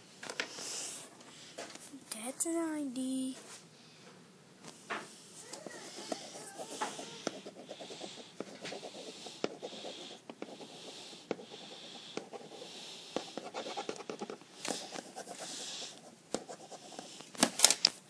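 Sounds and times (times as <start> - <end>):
pencil scratching on paper: 5.7 - 17.2
pencil tapping: 6.0 - 10.6, 13.2 - 15.1.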